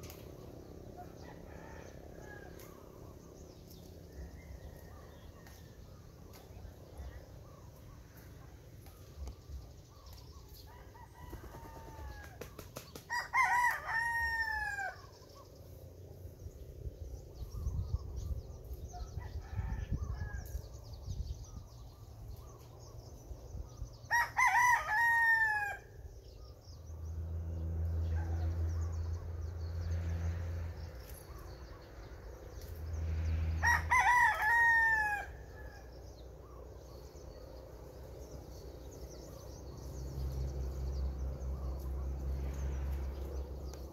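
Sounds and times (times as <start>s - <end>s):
rooster crowing: 13.1s - 15.2s, 24.1s - 25.9s, 33.6s - 35.9s.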